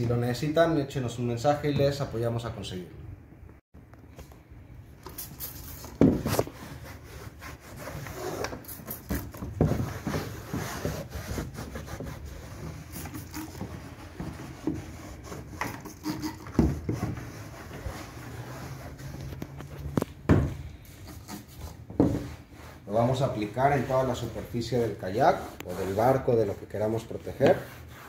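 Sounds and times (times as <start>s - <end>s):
cloth rag rubbing plastic: 5.2s - 20.0s, 21.0s - 28.0s.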